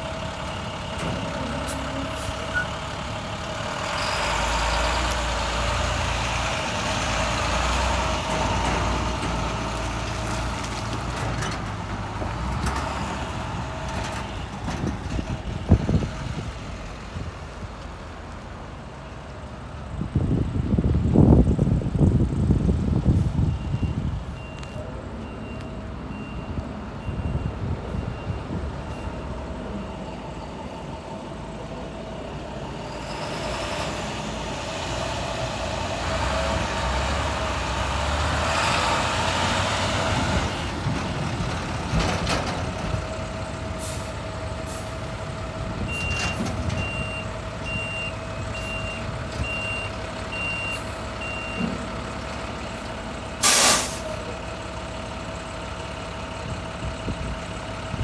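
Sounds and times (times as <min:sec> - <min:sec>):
diesel truck engine: 0:00.0 - 0:58.0
backup alarm beeping: 0:45.9 - 0:51.6.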